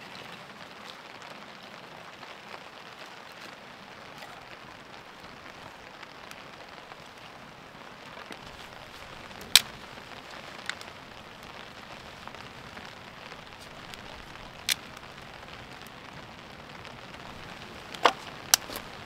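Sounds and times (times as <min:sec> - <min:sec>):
campfire crackling: 0:00.0 - 0:19.0
sharp pops of fire: 0:09.4 - 0:09.9.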